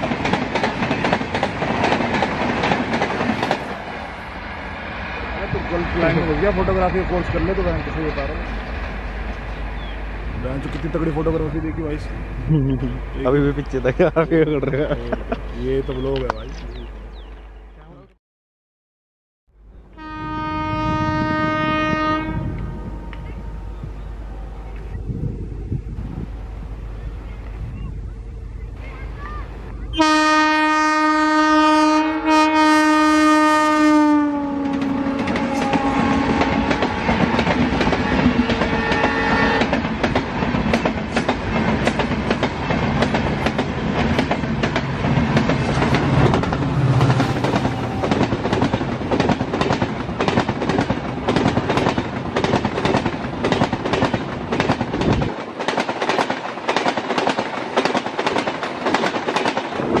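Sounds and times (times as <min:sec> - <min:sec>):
train rushing past: 0:00.0 - 0:17.5, 0:19.6 - 1:00.0
locomotive horn blowing: 0:19.9 - 0:23.8, 0:29.9 - 0:37.4, 0:38.0 - 0:39.7.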